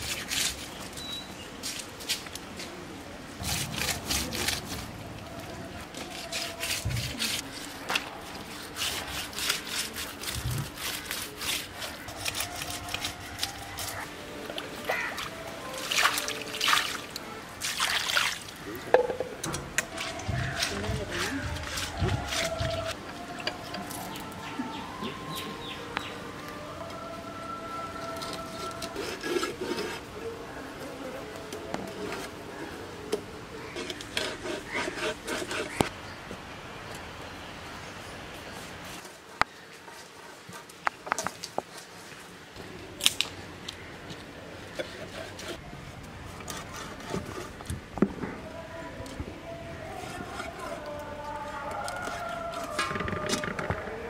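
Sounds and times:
knife scraping fish scales: 5.9 - 14.1.

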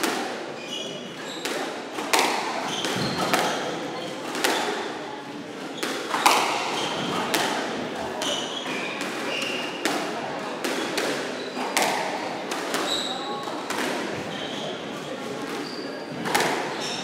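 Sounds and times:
squash ball hits: 0.0 - 0.4, 1.3 - 5.0, 5.6 - 14.4, 16.1 - 17.0
shoes squeaking on wooden floor: 2.6 - 4.6, 12.8 - 13.4, 15.6 - 17.0.

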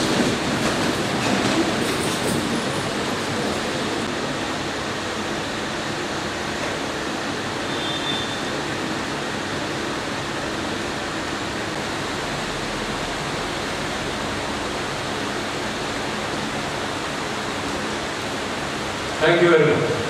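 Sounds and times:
room tone hiss: 4.0 - 20.0.

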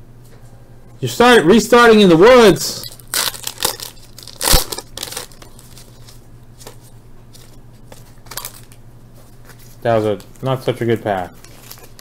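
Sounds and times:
faint steady hum: 0.0 - 12.0
foil wrapper tearing and crinkling: 2.8 - 6.8, 11.4 - 12.0
cards being handled: 2.9 - 12.0.

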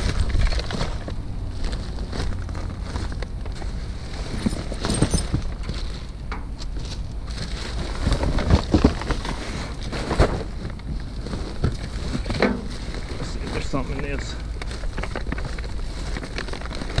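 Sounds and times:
rummaging through trash: 0.0 - 17.0.

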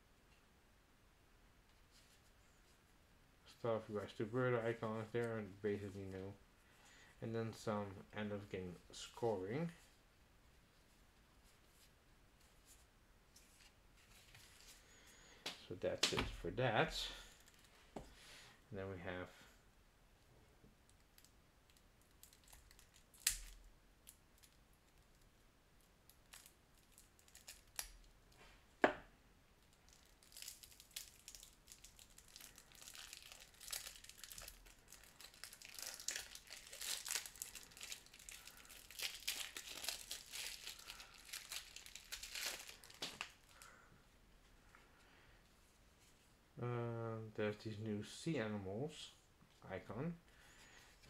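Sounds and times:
plastic wrap crinkling and tearing: 20.9 - 25.2, 26.1 - 28.2, 29.6 - 43.8.

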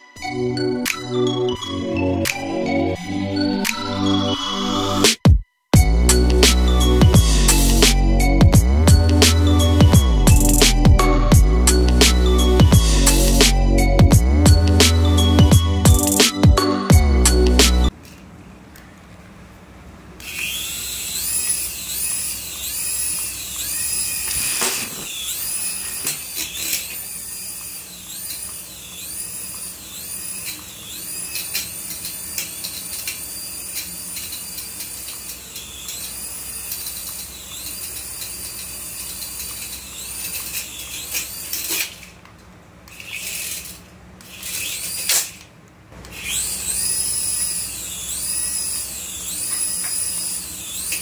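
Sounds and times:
toy helicopter rotor whine: 5.8 - 16.2, 20.2 - 42.2, 42.9 - 51.0.

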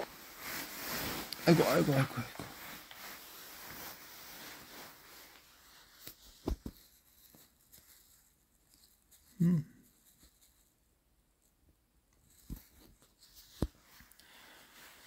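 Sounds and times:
person humming: 9.4 - 9.8.

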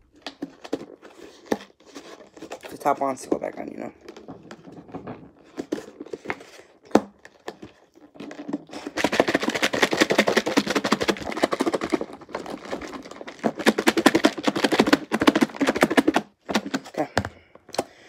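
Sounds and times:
salad rattling in plastic bowl: 7.1 - 17.0.

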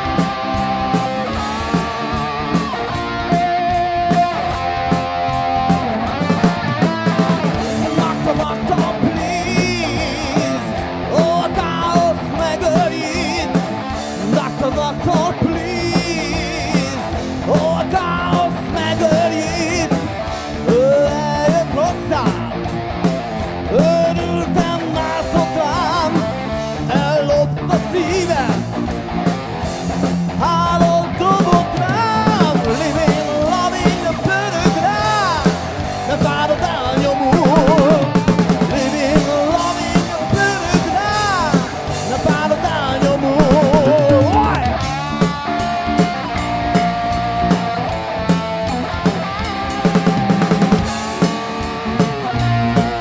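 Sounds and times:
bass guitar: 0.0 - 53.0
drum kit: 0.0 - 53.0
electric guitars: 0.0 - 53.0
man singing through loudspeakers: 7.8 - 22.6, 23.7 - 28.7, 30.4 - 44.8.

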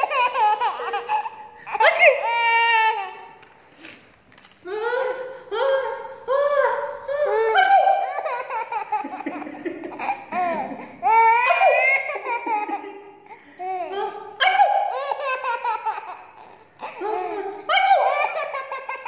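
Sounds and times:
baby laughing in squeals: 0.0 - 3.3, 7.2 - 13.8, 14.6 - 19.0.

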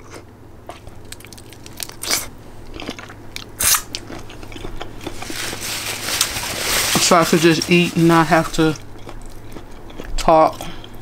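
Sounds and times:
person chewing food: 0.0 - 6.4, 8.4 - 11.0
crunchy bites: 0.8 - 6.4.

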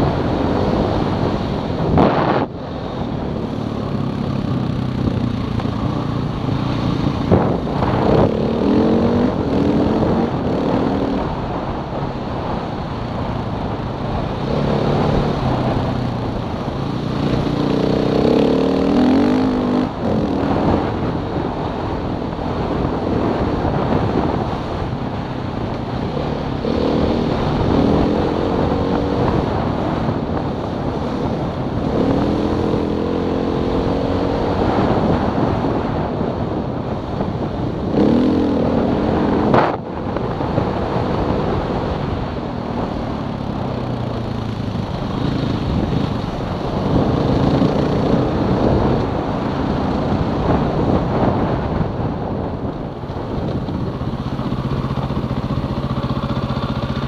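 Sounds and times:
vehicle engine revving: 0.0 - 57.0
tyres rumbling on gravel: 43.4 - 57.0.

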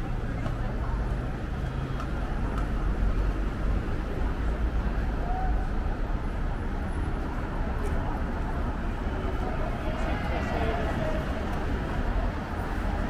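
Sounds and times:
murmur of voices: 0.0 - 13.0
traffic rumble: 0.0 - 13.0.

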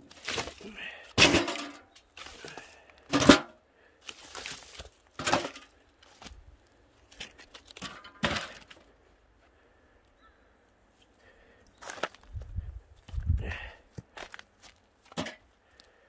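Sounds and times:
logs cracking and knocking: 0.0 - 6.4, 7.0 - 9.0, 13.9 - 16.0
dry leaves rustling: 2.2 - 2.9, 4.0 - 8.6.

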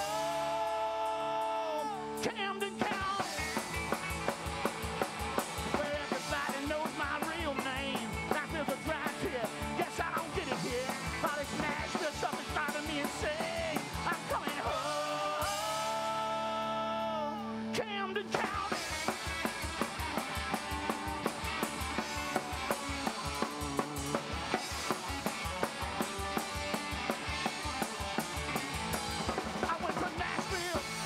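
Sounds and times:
person singing: 0.0 - 3.6, 5.7 - 18.9
electric guitar: 0.0 - 31.0
live rock and roll band: 0.0 - 31.0.

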